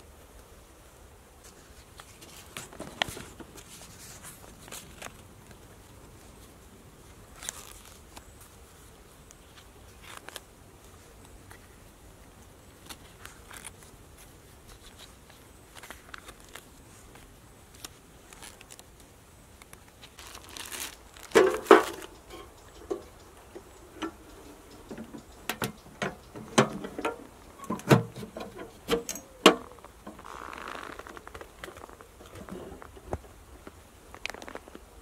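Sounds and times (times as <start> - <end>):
faint steady hiss: 0.0 - 35.0
notebook pages rustling: 1.5 - 6.4, 7.4 - 8.5, 12.8 - 19.0, 19.6 - 23.0.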